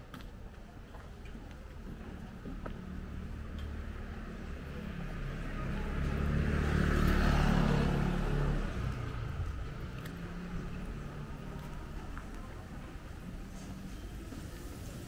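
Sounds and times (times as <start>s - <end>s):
vehicle passing by: 3.0s - 13.9s.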